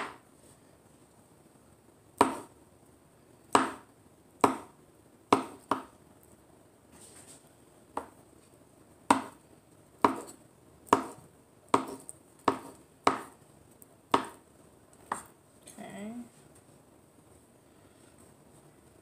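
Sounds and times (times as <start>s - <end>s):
knife chopping avocado: 2.2s - 2.6s, 3.5s - 5.9s, 9.1s - 9.4s, 10.0s - 13.4s, 14.1s - 14.4s, 15.0s - 15.3s.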